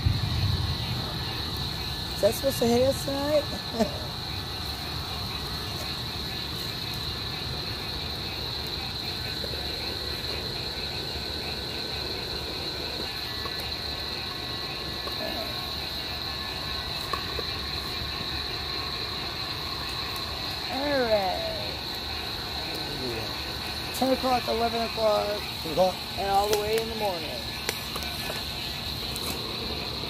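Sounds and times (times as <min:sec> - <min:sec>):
low rumble: 0:00.0 - 0:02.2
crickets chirping: 0:00.0 - 0:30.0.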